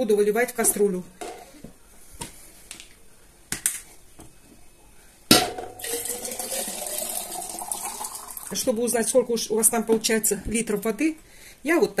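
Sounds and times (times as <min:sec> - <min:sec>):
water pouring into a pot: 0:05.8 - 0:08.6.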